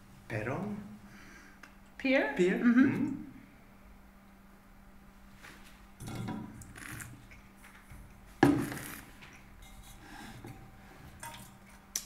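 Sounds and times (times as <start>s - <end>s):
metal bucket knocking on table: 8.4s - 8.9s.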